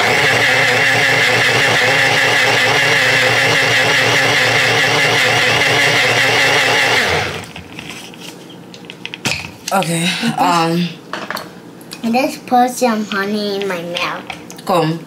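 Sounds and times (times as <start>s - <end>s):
blender running: 0.0s - 7.6s.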